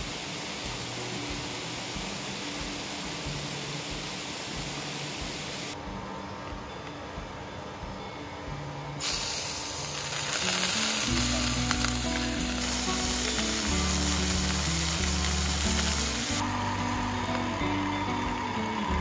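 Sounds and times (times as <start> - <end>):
meat sizzling in hot oil: 9.0 - 16.8.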